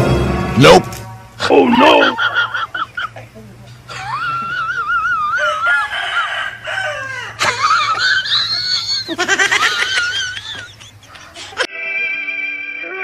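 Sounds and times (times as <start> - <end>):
high-pitched shrieking cries: 4.0 - 7.4.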